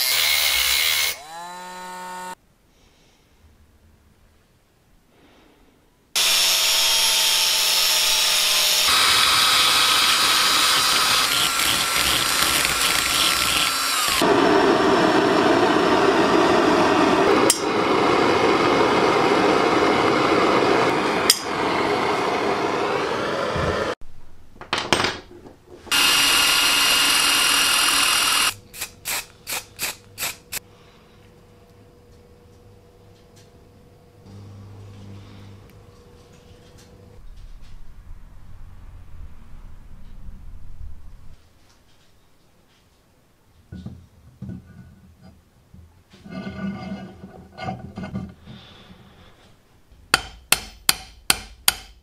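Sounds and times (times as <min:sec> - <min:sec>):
power tool whining: 0:06.2 - 0:24.0, 0:25.9 - 0:28.6, 0:34.3 - 0:35.8
short hissing bursts: 0:28.7 - 0:30.6.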